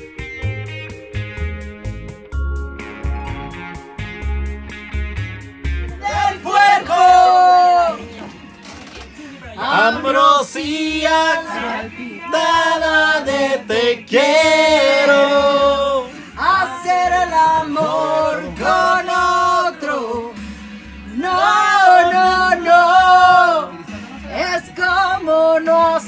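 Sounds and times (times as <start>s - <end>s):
person singing: 5.9s - 8.2s.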